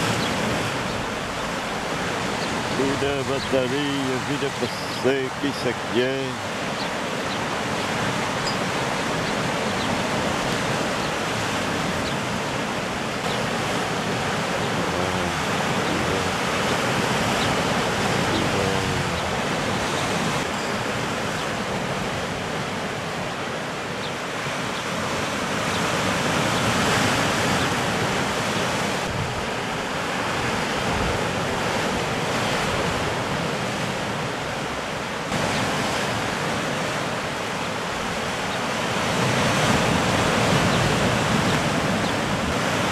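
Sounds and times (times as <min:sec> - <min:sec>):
surf breaking on rocks: 0:00.0 - 0:23.2.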